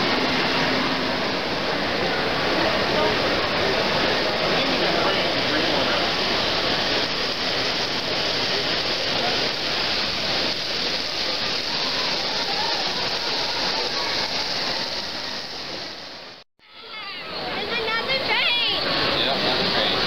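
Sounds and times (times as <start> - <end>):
crowd hubbub: 0.0 - 20.0.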